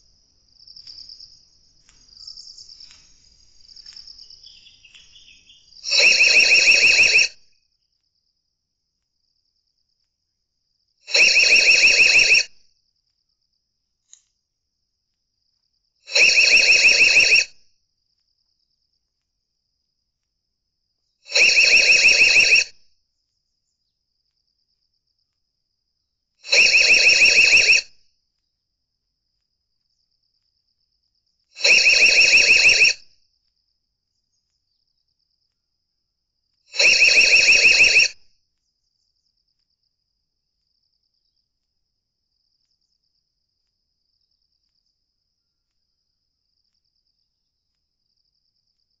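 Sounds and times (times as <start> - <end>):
electronic alarm siren: 5.9 - 7.4, 11.1 - 12.5, 21.3 - 22.8, 26.5 - 27.9, 31.6 - 33.0, 36.8 - 38.2.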